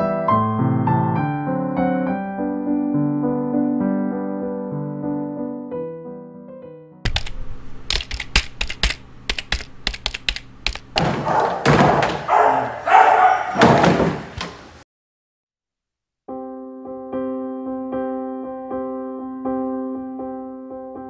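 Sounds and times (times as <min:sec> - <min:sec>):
piano tune: 0:00.0 - 0:11.6, 0:16.3 - 0:21.0
dog barking: 0:11.1 - 0:13.8.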